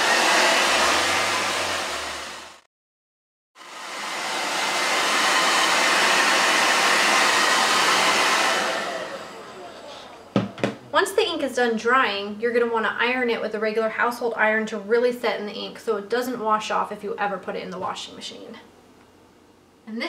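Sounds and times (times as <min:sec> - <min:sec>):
blow dryer running: 0:00.0 - 0:02.7, 0:03.6 - 0:11.2.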